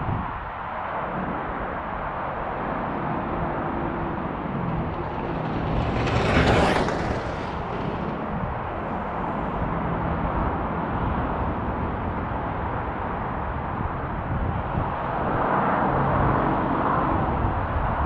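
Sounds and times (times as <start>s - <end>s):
steady background noise: 0.0s - 18.0s
electric ride whooshing past: 2.8s - 9.7s.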